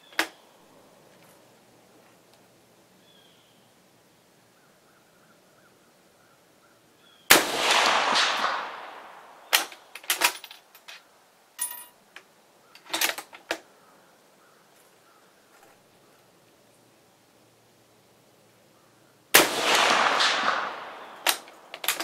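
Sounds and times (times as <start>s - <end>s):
rifle shot echoing: 7.3s - 10.0s, 19.3s - 22.0s
rifle bolt clicks: 19.7s - 22.0s.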